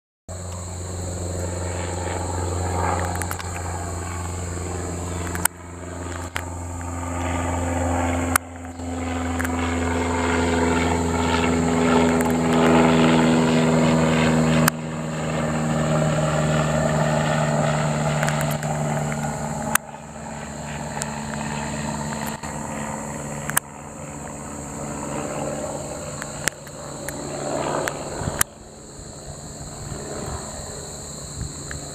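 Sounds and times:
light airplane droning overhead: 0.3s - 31.9s.

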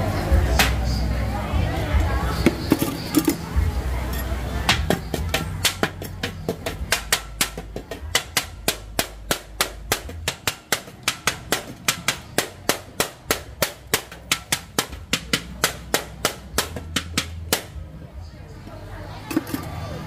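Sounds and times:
metal spoon knocking steel bowl: 4.1s - 17.7s.

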